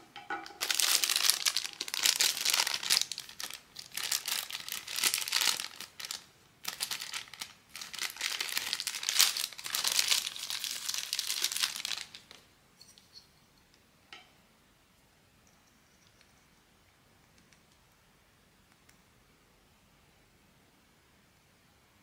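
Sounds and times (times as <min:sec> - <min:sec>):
packaging crinkling and tearing: 0:00.5 - 0:12.4.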